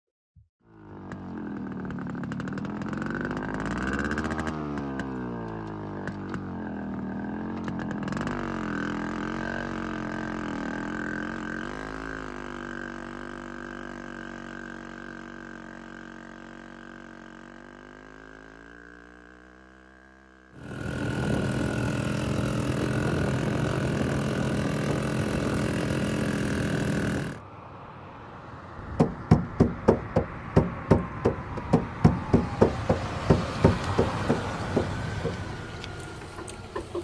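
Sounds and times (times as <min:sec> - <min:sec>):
motorcycle engine running: 0:00.6 - 0:27.4, 0:28.8 - 0:37.0
sharp knocks: 0:28.8 - 0:35.6.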